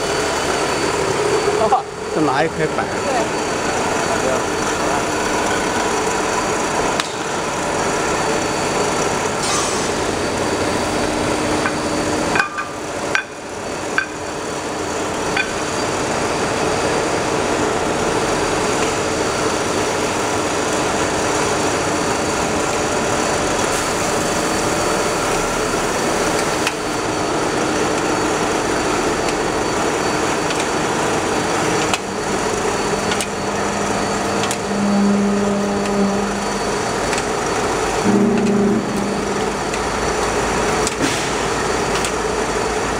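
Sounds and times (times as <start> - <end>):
machinery noise: 0.0 - 42.9
low hum: 32.6 - 40.9.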